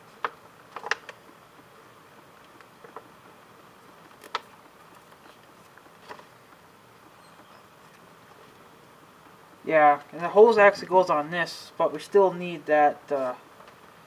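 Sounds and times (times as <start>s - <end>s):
faint steady hiss: 0.0s - 14.0s
paper crackling: 3.8s - 8.6s.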